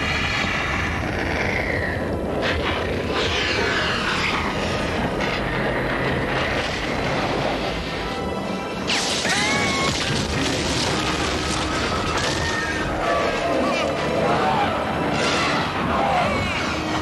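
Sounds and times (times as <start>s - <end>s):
action film music: 0.0s - 17.0s
crashing debris: 8.9s - 12.8s.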